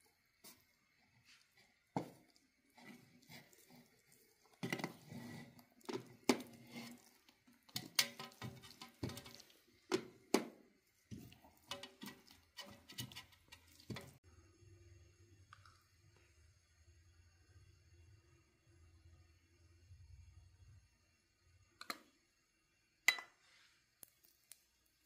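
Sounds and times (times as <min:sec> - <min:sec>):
wet squishing: 0:02.2 - 0:14.2, 0:24.0 - 0:24.9.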